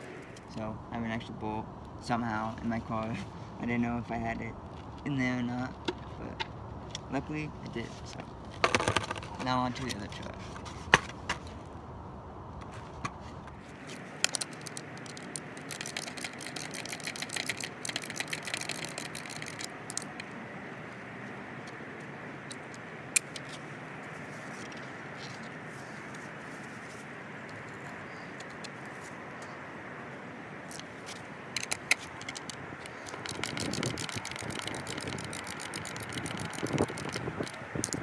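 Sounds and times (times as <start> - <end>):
skateboard truck hardware clicking: 8.5 - 10.1, 12.6 - 20.4, 22.4 - 23.6, 30.7 - 38.0.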